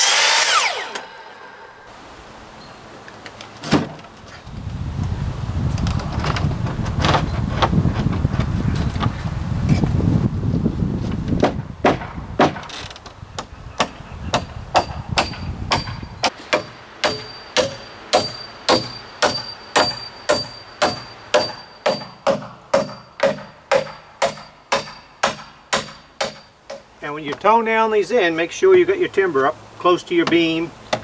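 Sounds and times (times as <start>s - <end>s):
hammer striking nails: 11.4s - 12.7s, 13.8s - 26.9s
thin high ring: 17.0s - 25.2s.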